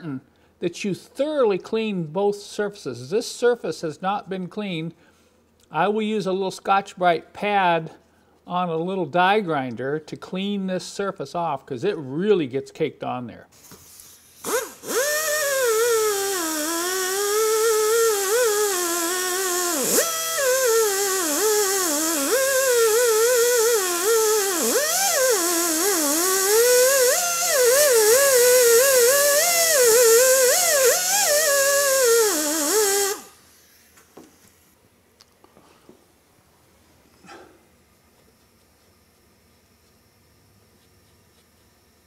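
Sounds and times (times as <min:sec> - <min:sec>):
die grinder high whine: 0:14.4 - 0:33.9.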